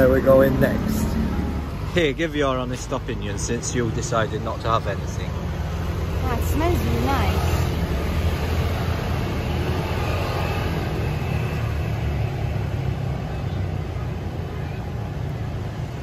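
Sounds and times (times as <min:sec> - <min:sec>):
road traffic rumble: 0:00.0 - 0:16.0.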